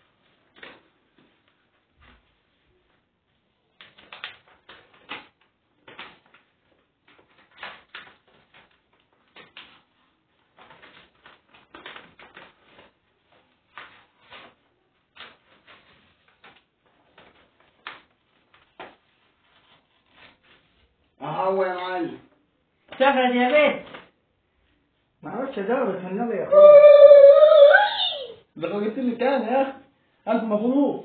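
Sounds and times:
paper rustling and crinkling: 0:00.0 - 0:21.2, 0:22.8 - 0:25.1.

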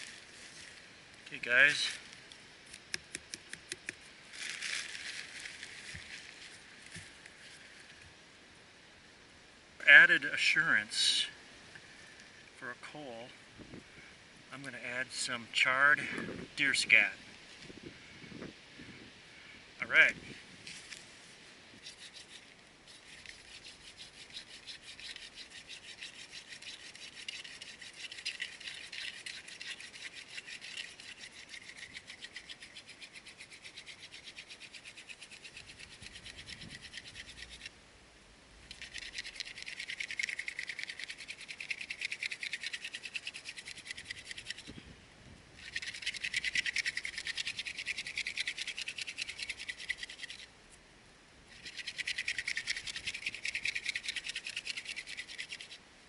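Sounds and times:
wooden spindle grinding on wood: 0:21.8 - 0:37.7.

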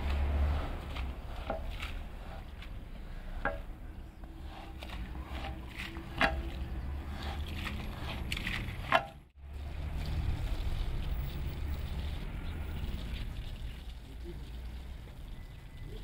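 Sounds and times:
hose spraying water: 0:09.5 - 0:16.0.

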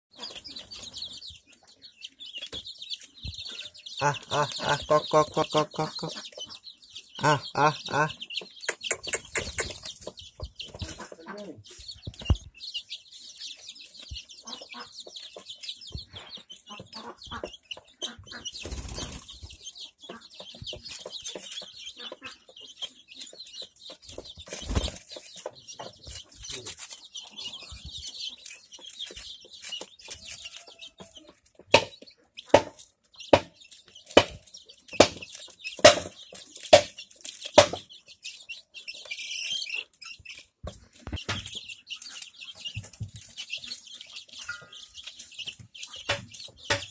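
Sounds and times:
chicks peeping: 0:00.1 - 0:46.9
loud sharp knocks: 0:35.8 - 0:36.9.

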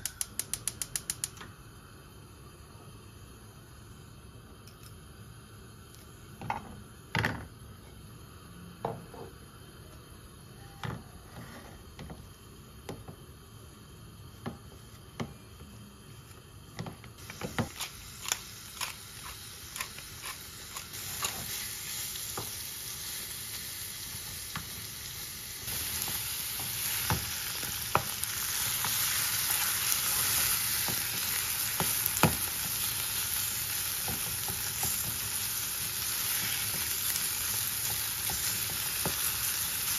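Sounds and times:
meat and onions sizzling: 0:05.3 - 0:39.9
wooden spoon scraping a pan: 0:11.2 - 0:11.8.

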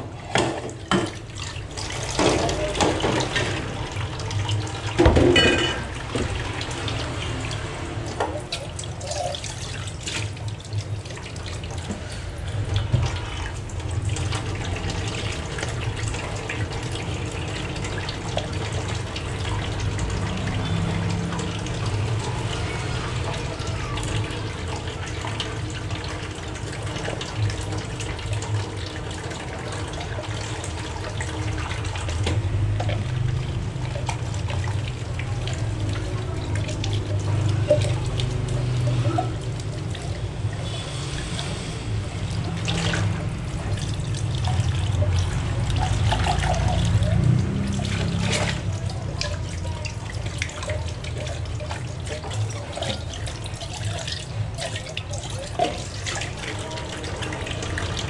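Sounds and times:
tap water running into sink: 0:00.0 - 0:58.0
metal bowls clinking: 0:05.2 - 0:05.9
sponge scrubbing metal bowls: 0:25.1 - 0:58.0.

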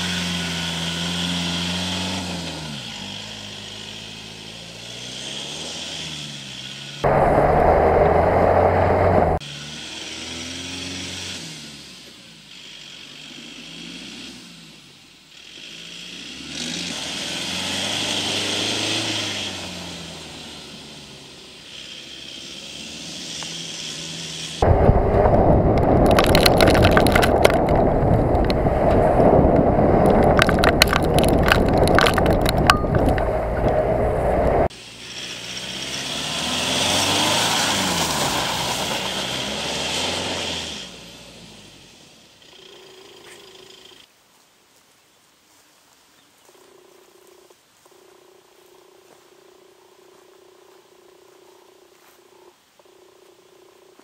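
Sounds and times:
wind and tyre noise: 0:00.0 - 0:12.8, 0:14.5 - 0:54.0
diesel engine revving: 0:00.0 - 0:42.4
grass and dirt striking: 0:24.6 - 0:34.7.

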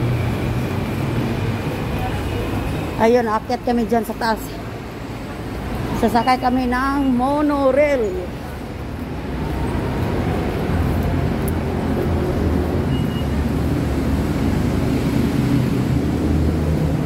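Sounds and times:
rail station concourse rumble: 0:00.0 - 0:17.0.

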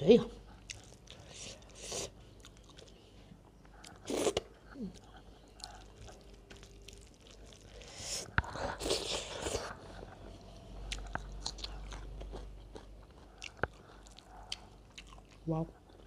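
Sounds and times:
chewing: 0:00.5 - 0:16.0
crisp crunching: 0:05.6 - 0:08.0.

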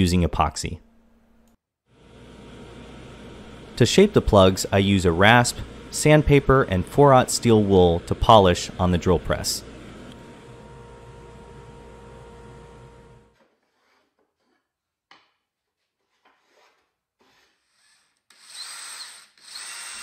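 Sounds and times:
drill press humming: 0:02.0 - 0:13.4, 0:17.8 - 0:20.0
wood scraping against wood: 0:13.4 - 0:14.8, 0:15.6 - 0:17.6.

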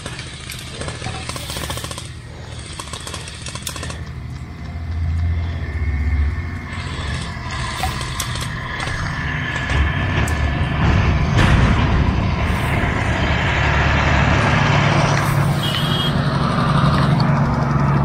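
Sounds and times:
airsoft guns firing bursts: 0:00.0 - 0:04.2.

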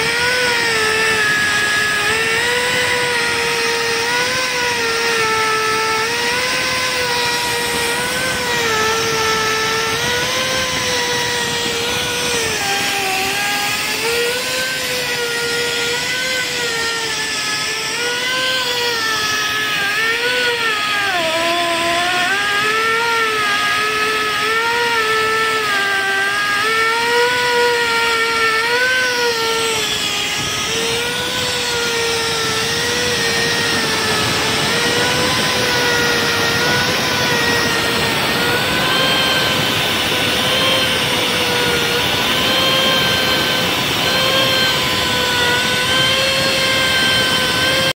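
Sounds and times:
machine motor whining: 0:00.0 - 0:47.9.

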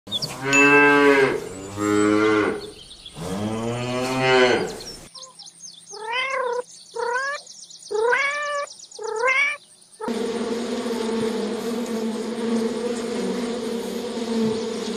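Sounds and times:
cow mooing: 0:00.4 - 0:04.9
cat meowing: 0:06.0 - 0:09.6
steady buzz: 0:10.1 - 0:14.9.

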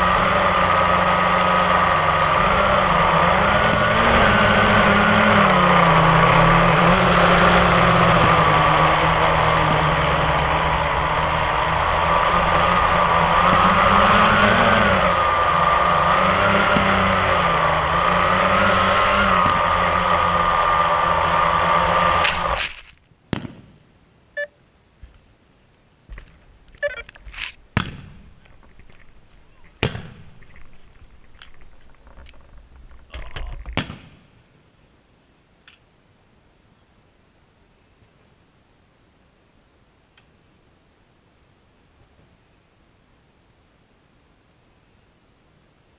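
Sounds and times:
drone propellers whirring: 0:00.0 - 0:22.9, 0:26.8 - 0:33.9
fireworks popping: 0:22.2 - 0:23.8, 0:26.9 - 0:34.3.

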